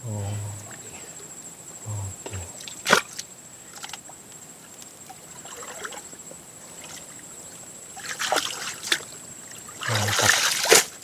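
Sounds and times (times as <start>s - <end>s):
mud sloshing and squelching: 8.0s - 11.0s.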